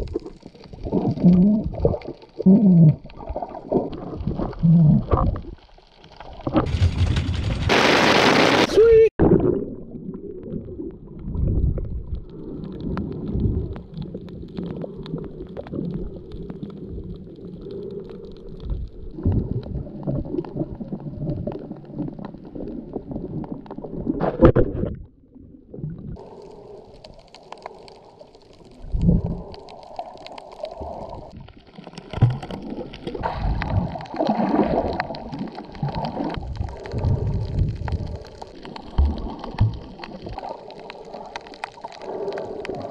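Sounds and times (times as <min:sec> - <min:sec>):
underwater rumbling and gurgling: 0:00.0 - 0:08.4, 0:09.2 - 0:42.9
knocks and bumps: 0:06.6 - 0:07.8.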